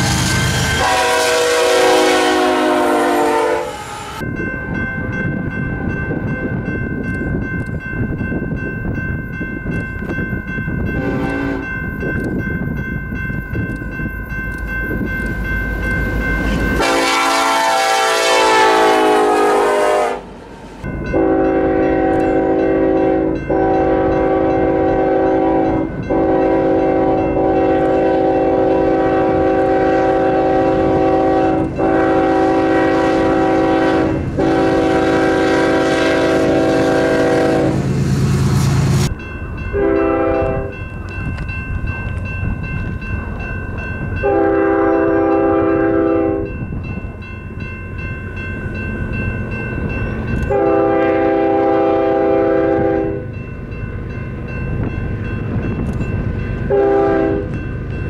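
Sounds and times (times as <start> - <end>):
crossing bell ringing: 0.0 - 58.0
locomotive passing rumble: 0.0 - 58.0
locomotive air horn blasts: 0.7 - 4.2, 11.0 - 11.7, 16.8 - 20.3, 21.1 - 37.9, 39.7 - 40.8, 44.2 - 46.5, 50.5 - 53.3, 56.7 - 57.6.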